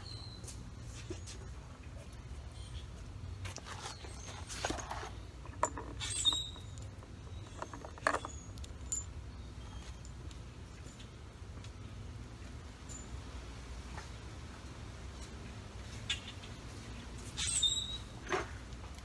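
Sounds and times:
low steady hum: 0.0 - 17.3
metal hardware clinking: 4.6 - 10.2.

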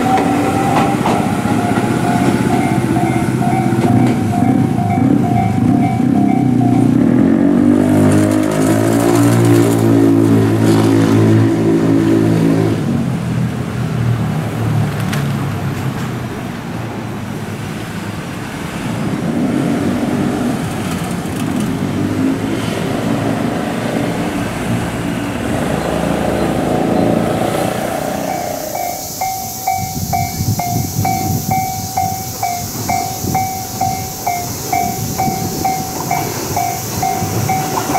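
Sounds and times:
level-crossing bell ringing: 0.0 - 7.0, 27.9 - 37.9
wheel-on-rail noise: 0.0 - 37.9
electric train motor hum: 25.4 - 37.9.

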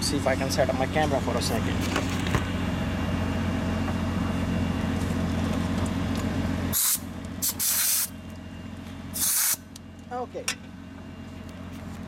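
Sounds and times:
steady low hum: 0.0 - 12.0
compressed air hissing: 6.7 - 8.1, 9.2 - 9.6.

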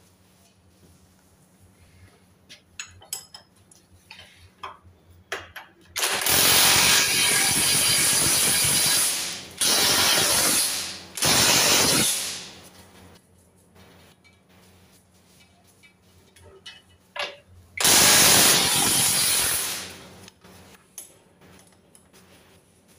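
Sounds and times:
electric ratchet running: 6.0 - 12.5, 17.8 - 20.0.

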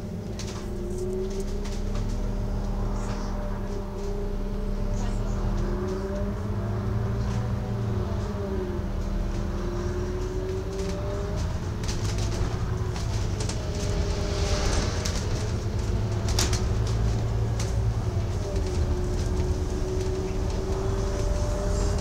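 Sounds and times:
bus engine and road rumble: 0.0 - 22.0
bodywork rattles and clicks: 9.3 - 22.0.

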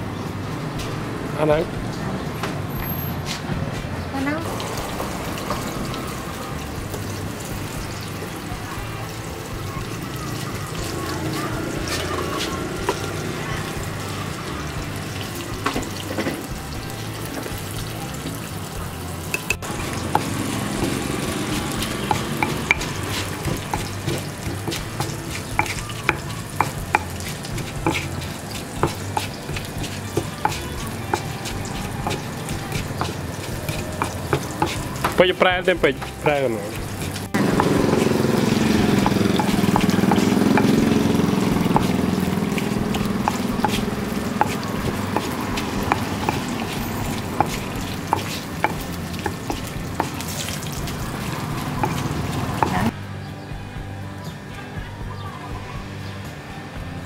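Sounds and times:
oil sizzling: 4.2 - 53.0
pestle pounding in stone mortar: 11.6 - 14.0, 19.3 - 53.0.

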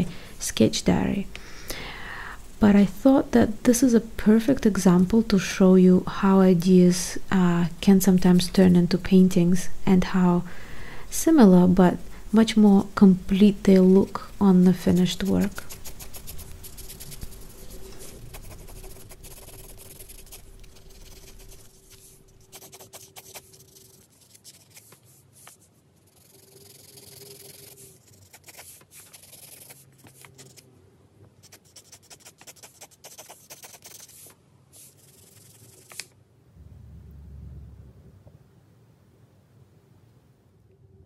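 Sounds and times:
pencil scratching on paper: 14.8 - 30.6, 31.4 - 36.0
low rumbling background: 36.4 - 41.0.

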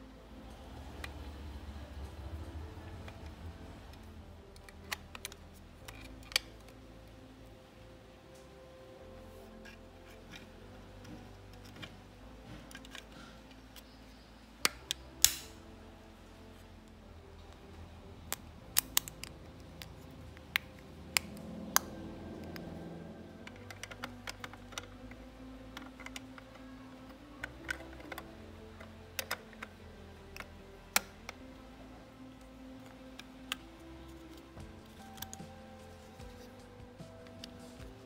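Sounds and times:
plastic toy parts clicking: 3.9 - 6.8, 12.7 - 14.0, 14.6 - 15.5, 18.3 - 22.7, 23.4 - 25.1, 25.7 - 31.4, 32.8 - 35.5
sharp plastic snaps: 14.6 - 15.6, 18.3 - 21.9.

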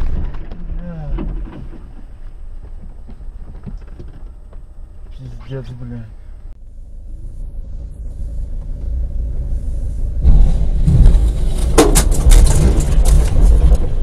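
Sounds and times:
grit cracking and clattering: 0.0 - 4.7, 10.8 - 14.0
low rumble of cars: 0.0 - 14.0.

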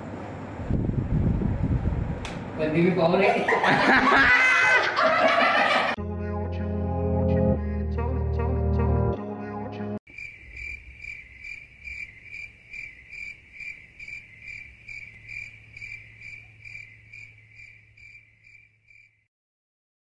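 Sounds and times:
cricket chirping: 10.1 - 19.3.

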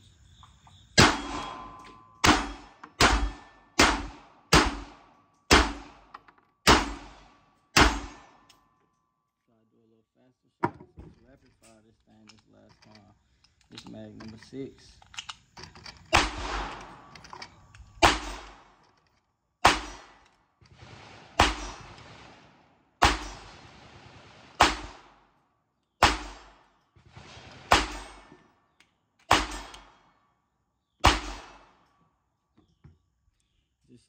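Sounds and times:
pistol shots: 1.0 - 8.5, 16.1 - 17.1, 17.9 - 18.8, 19.6 - 20.2, 20.8 - 25.2, 26.0 - 28.4, 29.2 - 30.1, 31.0 - 31.9.

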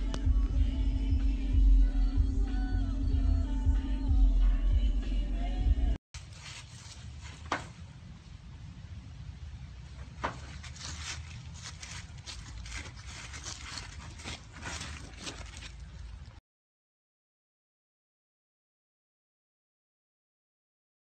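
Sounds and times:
low steady rumble: 0.0 - 16.4
dog paws digging in gravel: 6.2 - 7.6, 10.1 - 16.4.

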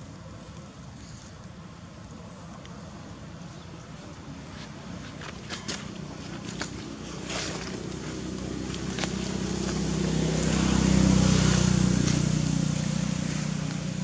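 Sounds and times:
engine passing by: 4.9 - 14.0.

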